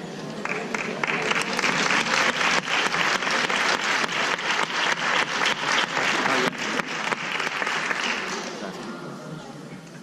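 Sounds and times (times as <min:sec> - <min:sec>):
audience applauding: 0:00.4 - 0:08.8.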